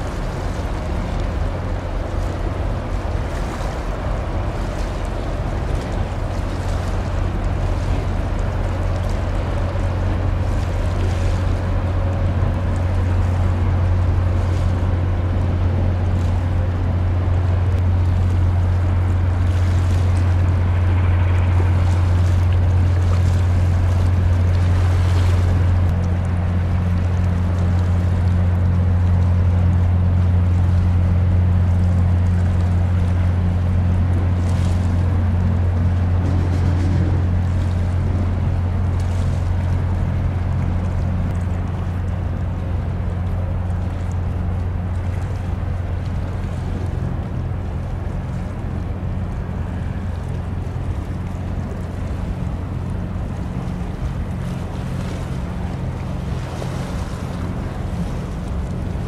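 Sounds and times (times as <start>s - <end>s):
ship engines droning: 0.0s - 59.0s
water wash: 0.0s - 59.0s
wind noise: 32.3s - 43.0s.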